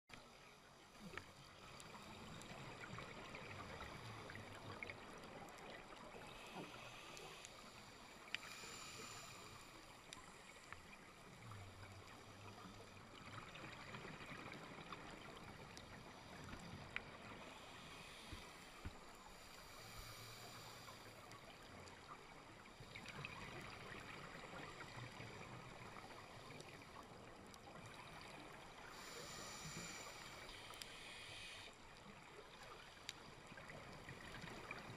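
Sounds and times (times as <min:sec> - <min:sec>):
exhaled bubble hiss: 0:00.9 - 0:26.9, 0:27.9 - 0:34.9
diver regulator breathing: 0:06.2 - 0:10.8, 0:16.0 - 0:21.5, 0:28.9 - 0:31.8.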